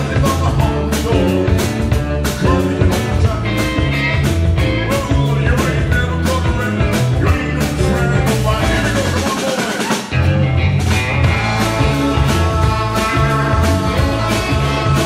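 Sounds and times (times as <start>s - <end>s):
bass guitar: 0.0s - 15.0s
drum kit beat: 0.0s - 15.0s
electric guitars: 0.0s - 15.0s.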